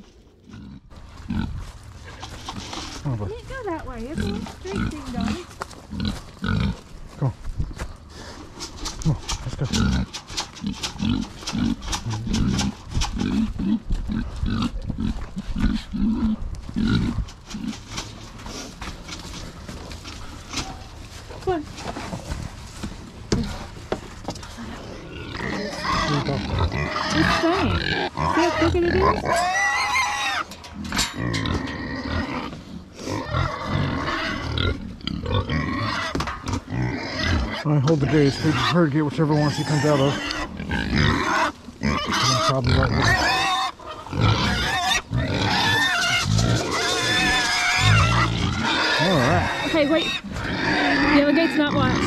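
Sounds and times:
footsteps on dry ground: 0:00.0 - 0:09.6, 0:12.4 - 0:29.6
pig grunting: 0:00.3 - 0:07.4, 0:08.2 - 0:21.0, 0:24.5 - 0:52.0.

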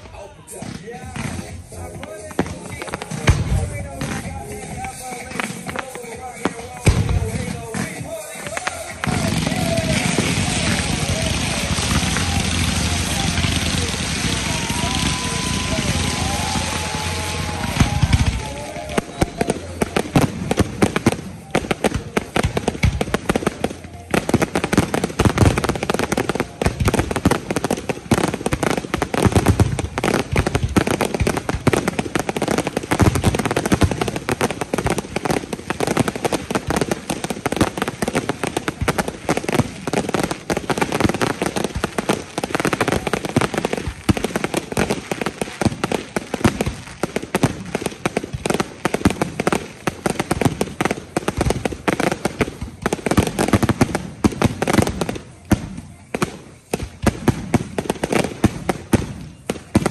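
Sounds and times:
fireworks bursting rapidly: 0:00.0 - 0:59.9.

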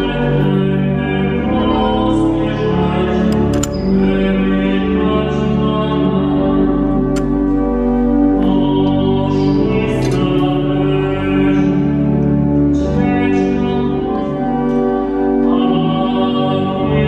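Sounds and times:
person singing a carol: 0:00.0 - 0:17.0
sustained instrumental accompaniment: 0:00.0 - 0:17.0.

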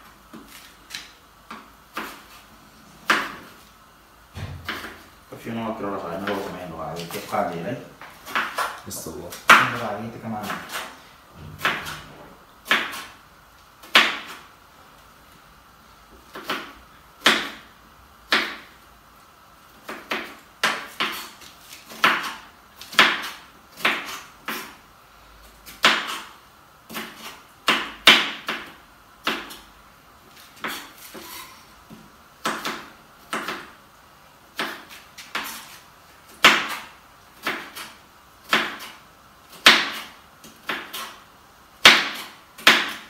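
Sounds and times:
knife chopping on wooden board: 0:00.3 - 0:02.3, 0:03.0 - 0:03.6, 0:04.4 - 0:05.0, 0:08.1 - 0:13.2, 0:13.8 - 0:14.4, 0:16.3 - 0:17.7, 0:18.3 - 0:18.7, 0:19.8 - 0:24.8, 0:25.7 - 0:26.3, 0:26.9 - 0:29.6, 0:30.6 - 0:33.8, 0:34.6 - 0:35.7, 0:36.4 - 0:41.2, 0:41.8 - 0:43.0.

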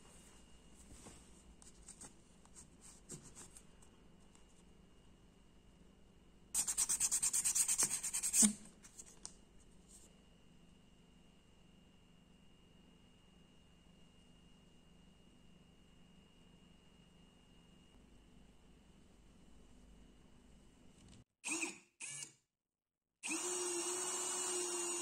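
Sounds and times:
faint scratching and handling: 0:00.0 - 0:04.8
sandpaper rubbing on metal: 0:06.6 - 0:08.5.

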